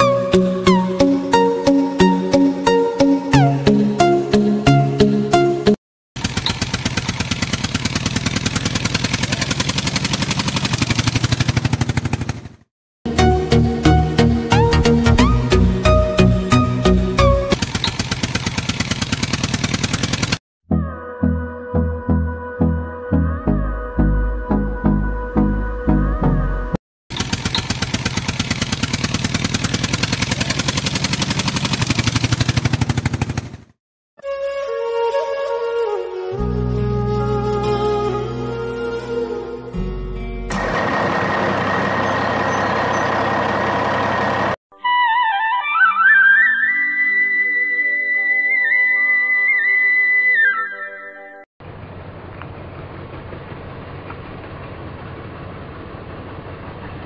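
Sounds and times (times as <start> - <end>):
engine putt-putt sound effect: 6.2 - 12.7, 17.4 - 20.4, 27.1 - 33.7.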